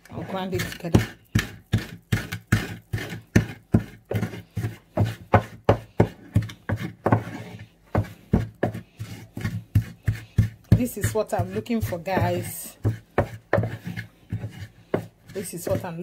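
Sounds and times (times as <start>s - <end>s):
pestle pounding in wooden mortar: 0.2s - 16.0s.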